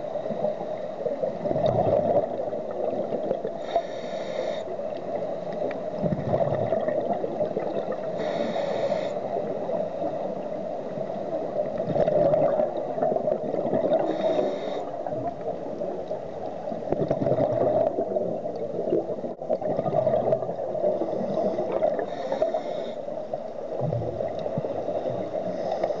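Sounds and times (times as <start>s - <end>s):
bubbling exhalations: 1.4s - 3.3s, 6.0s - 8.0s, 11.8s - 15.4s, 16.9s - 20.6s
regulator hissing inhalations: 3.6s - 4.8s, 8.1s - 9.3s, 14.0s - 15.0s, 21.0s - 23.1s, 25.4s - 26.0s.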